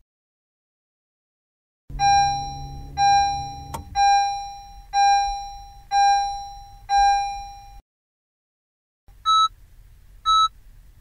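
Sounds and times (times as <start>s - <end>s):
low hum: 1.9s - 5.9s
car warning chime dinging: 1.9s - 7.8s.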